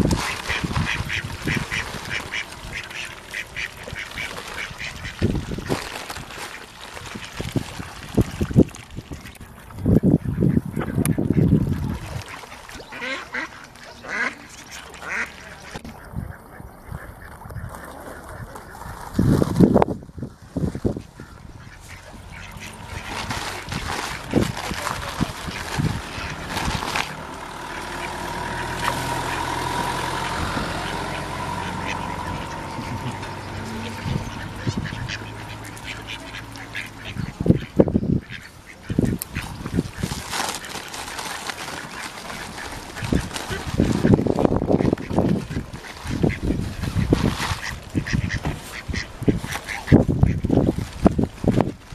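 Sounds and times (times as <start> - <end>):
ducks quacking: 0.0 - 19.2, 20.2 - 51.0
loud low muffled rumble: 19.9 - 38.3.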